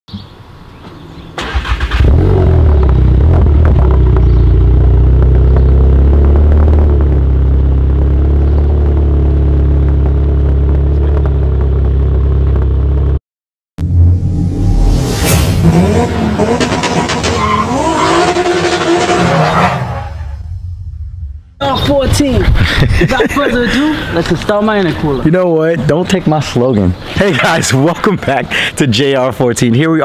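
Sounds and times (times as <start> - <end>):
car engine starting and idling: 1.4 - 13.2, 13.8 - 22.0.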